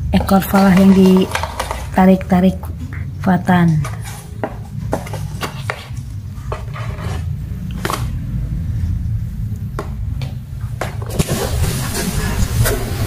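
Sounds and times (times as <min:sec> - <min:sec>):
steady low hum: 0:00.0 - 0:13.0
kittens scraping cardboard carton: 0:00.5 - 0:02.0, 0:05.0 - 0:07.3.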